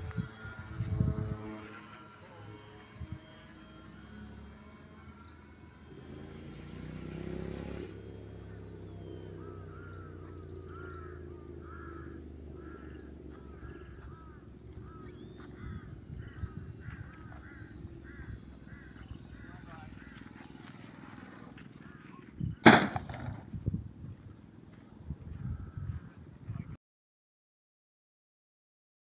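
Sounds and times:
electric motor and propeller whine: 0.0s - 26.4s
bird calling: 7.2s - 22.9s.

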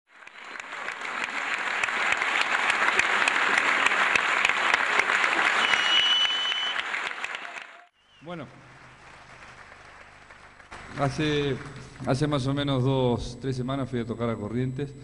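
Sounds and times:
audience applauding: 0.1s - 12.6s
short high whistle: 5.5s - 6.9s.

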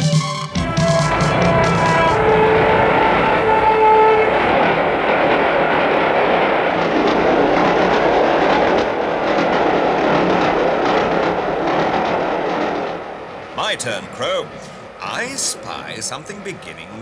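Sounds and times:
train clattering along track: 0.0s - 17.0s
train horn blast: 0.2s - 6.6s.

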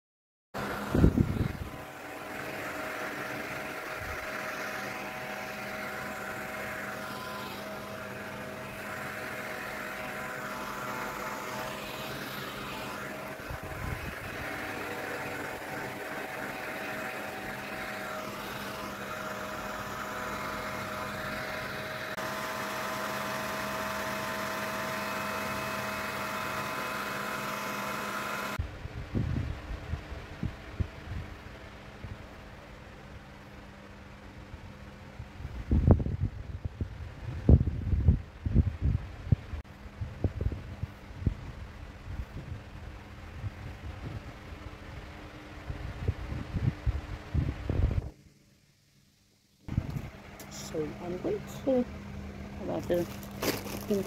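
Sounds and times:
mechanical hum with held tones: 0.6s - 54.0s.

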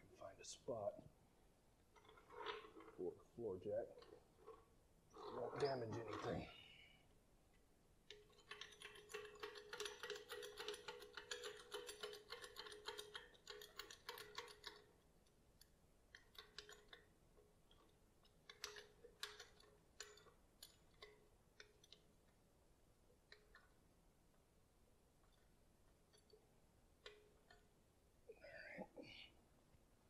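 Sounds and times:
floor jack clicking rattle: 8.3s - 14.8s.

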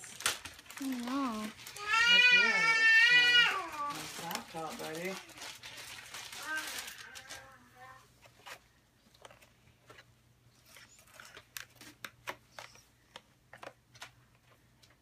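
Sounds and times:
wrapping paper crinkling and tearing: 0.0s - 8.6s, 10.6s - 12.8s.

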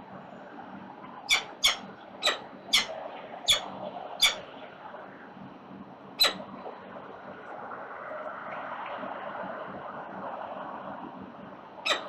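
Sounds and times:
falcon chicks begging calls: 1.3s - 3.6s, 4.2s - 4.4s.

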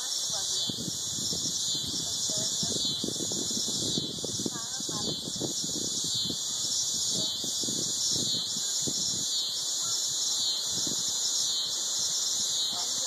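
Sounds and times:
insect chorus droning: 0.0s - 13.0s.

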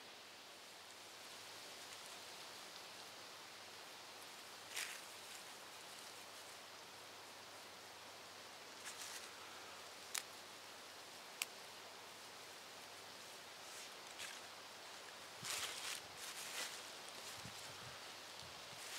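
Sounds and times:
steady soft hiss: 0.0s - 18.9s
dry pine needles rustling: 3.8s - 6.8s, 8.5s - 18.9s.

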